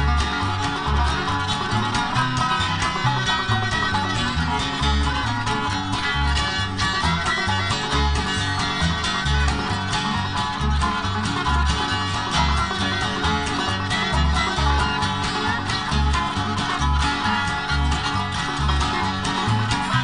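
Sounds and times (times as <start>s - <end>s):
bluegrass music: 0.0s - 20.0s.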